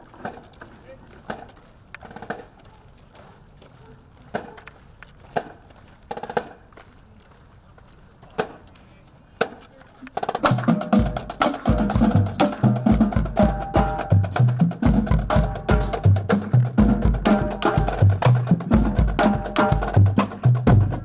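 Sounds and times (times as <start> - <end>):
marching band playing: 5.4 - 6.6, 10.2 - 21.0.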